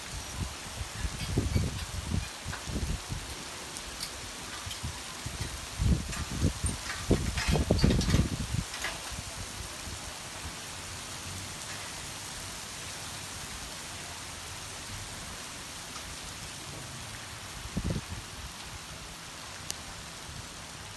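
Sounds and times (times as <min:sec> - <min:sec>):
rain falling: 0:00.0 - 0:20.9
wind buffeting microphone: 0:00.1 - 0:03.4, 0:04.5 - 0:10.0, 0:17.6 - 0:18.4.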